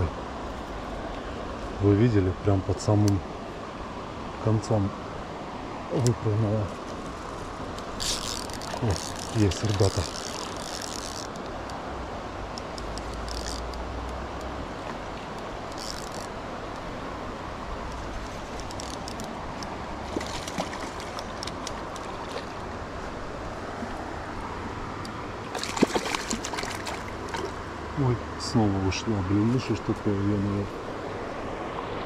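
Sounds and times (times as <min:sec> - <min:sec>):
shallow river rushing: 0:00.0 - 0:32.0
fishing reel ticking: 0:08.0 - 0:11.4, 0:13.0 - 0:13.8, 0:15.7 - 0:16.3.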